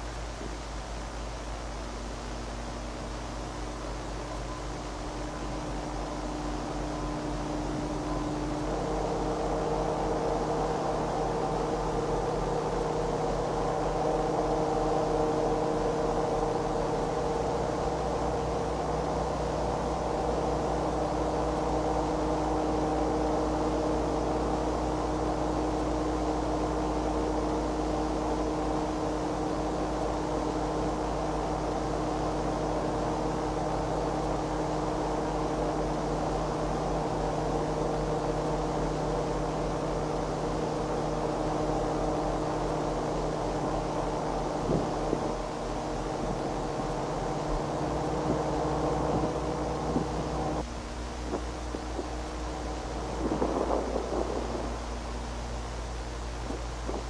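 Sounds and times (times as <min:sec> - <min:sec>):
background hiss: 0:00.0 - 0:57.0
deep hum: 0:00.0 - 0:57.0
diesel locomotive engines droning: 0:00.0 - 0:57.0.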